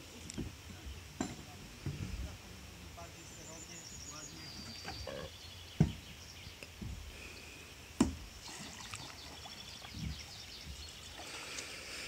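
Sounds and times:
soft low bumps: 4.3s - 7.2s, 9.3s - 11.1s.

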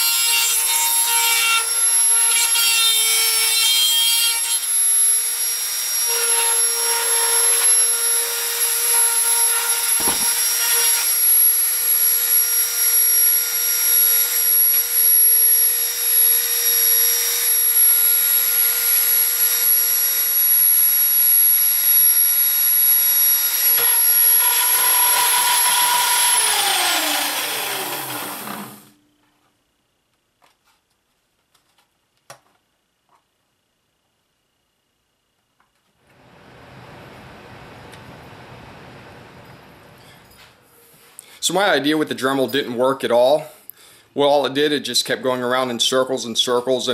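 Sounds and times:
rotary tool grinding metal: 0.0s - 20.3s, 22.6s - 29.0s
rotary tool spinning down: 23.8s - 28.9s.

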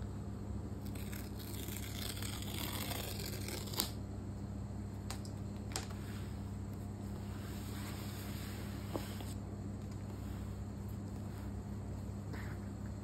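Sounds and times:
paper tear-strip ripping: 0.8s - 4.0s.

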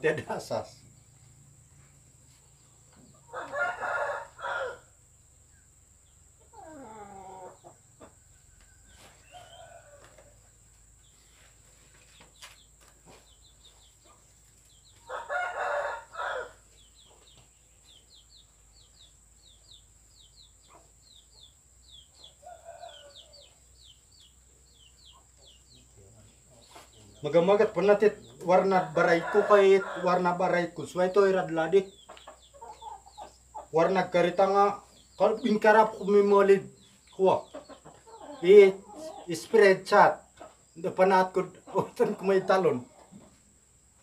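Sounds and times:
rooster crowing: 3.2s - 5.0s, 8.2s - 10.4s, 15.0s - 16.6s, 22.4s - 23.5s, 28.5s - 30.5s.

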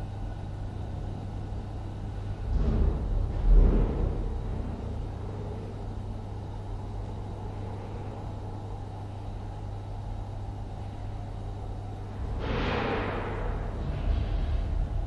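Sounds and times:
constant hum: 0.0s - 15.0s
low rumble: 10.4s - 15.0s.

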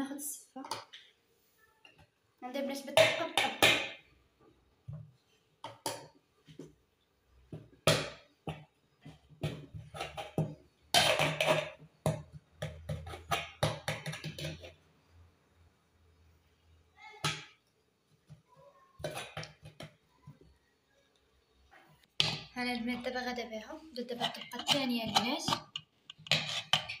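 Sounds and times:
metal spoon scraping metal bowl: 24.0s - 27.0s.

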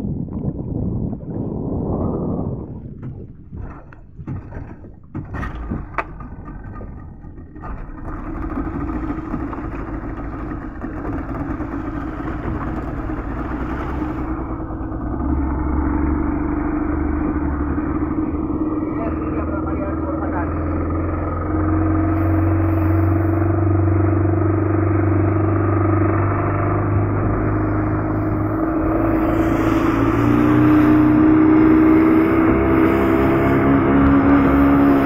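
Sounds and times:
outboard motor running: 0.0s - 35.0s
clunks and knocks at motor: 3.0s - 13.1s.

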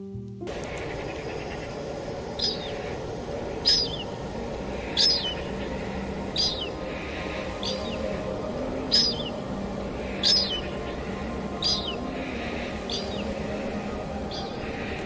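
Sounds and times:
steady rain falling: 0.4s - 15.0s.

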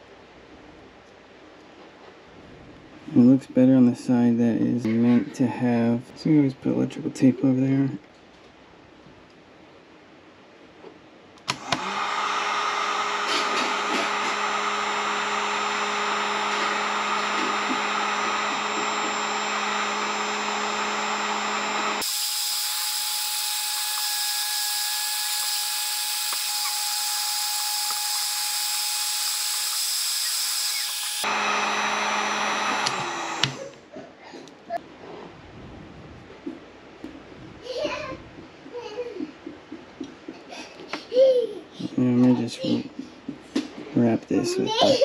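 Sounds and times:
heat gun fan whirring: 11.4s - 33.8s.

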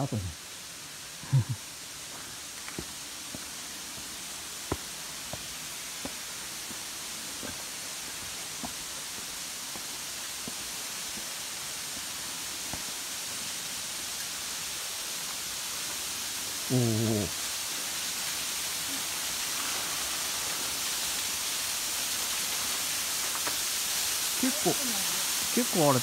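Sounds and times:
waterfall rushing: 0.0s - 26.0s
person exclaiming: 16.7s - 17.3s, 24.4s - 26.0s.

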